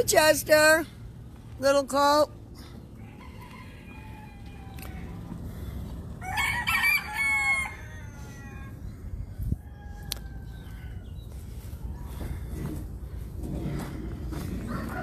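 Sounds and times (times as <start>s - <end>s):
steady low rumble: 0.0s - 15.0s
rooster crowing: 3.0s - 5.2s, 6.2s - 11.1s, 14.6s - 15.0s.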